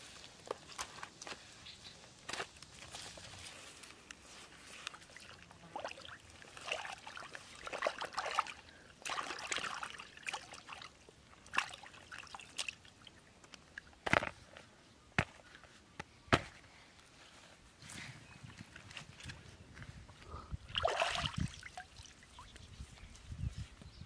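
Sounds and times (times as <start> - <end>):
water sloshing and splashing: 4.8 - 13.9, 20.7 - 22.6.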